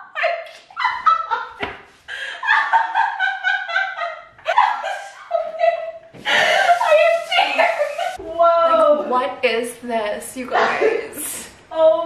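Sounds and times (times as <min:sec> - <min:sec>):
women laughing and squealing: 0:00.1 - 0:08.2.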